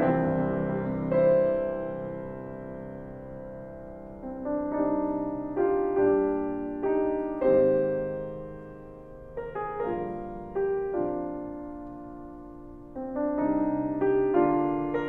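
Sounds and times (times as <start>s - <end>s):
solo piano melody: 0.0s - 15.0s.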